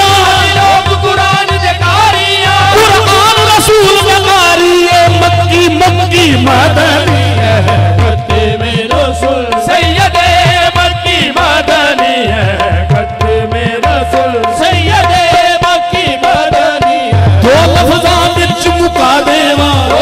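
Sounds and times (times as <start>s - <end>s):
harmonium held note: 0.0s - 20.0s
hand drum beats: 4.9s - 20.0s.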